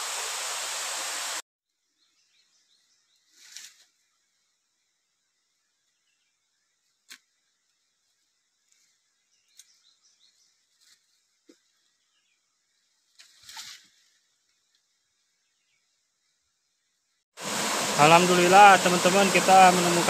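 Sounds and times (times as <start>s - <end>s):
rustle of brushed vegetation: 2.8s - 4.6s, 5.8s - 15.3s.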